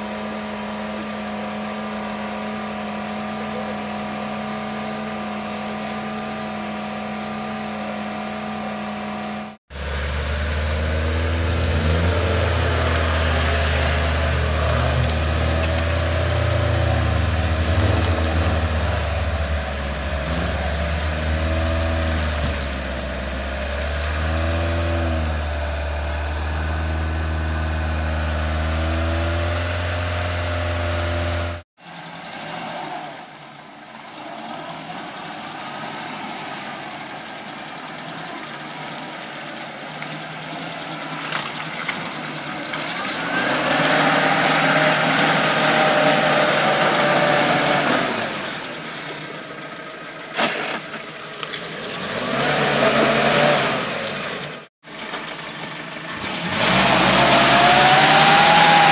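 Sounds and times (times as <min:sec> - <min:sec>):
engine revving in mud: 0:00.0 - 0:58.9
off-road engine running: 0:00.0 - 0:58.9.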